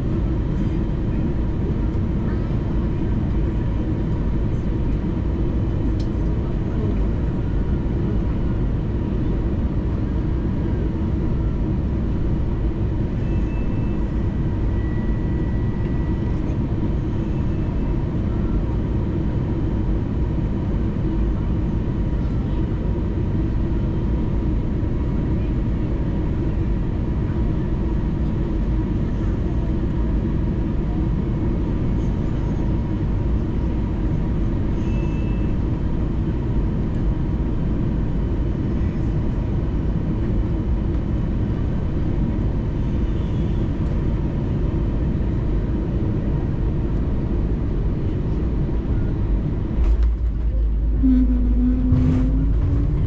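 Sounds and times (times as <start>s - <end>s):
airplane cabin engine rumble: 0.0s - 53.0s
faint hum: 46.8s - 53.0s.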